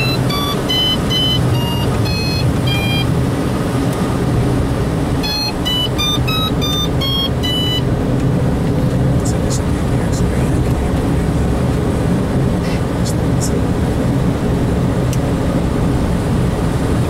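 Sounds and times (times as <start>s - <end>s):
electronic variometer beeps: 0.0s - 3.2s, 5.2s - 7.9s
low cockpit rumble: 0.0s - 17.0s.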